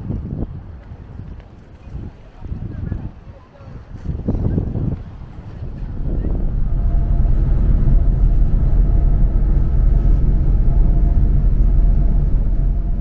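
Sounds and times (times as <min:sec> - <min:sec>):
bus engine and road rumble: 0:03.9 - 0:13.0
faint steady hum: 0:05.6 - 0:13.0.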